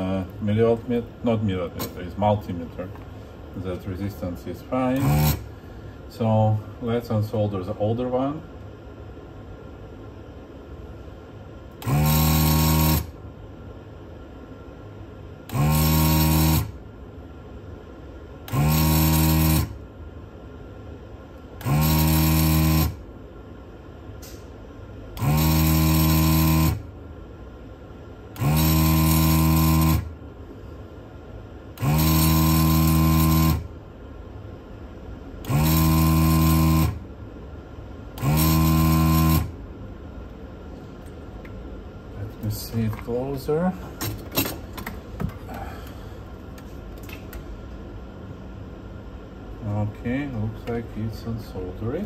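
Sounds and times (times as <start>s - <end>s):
desoldering pump buzzing: 0.0s - 8.0s, 11.7s - 13.2s, 15.3s - 17.0s, 18.4s - 19.9s, 21.3s - 23.2s, 24.2s - 27.1s, 28.2s - 30.4s, 31.6s - 34.0s, 35.3s - 37.3s, 38.0s - 39.8s.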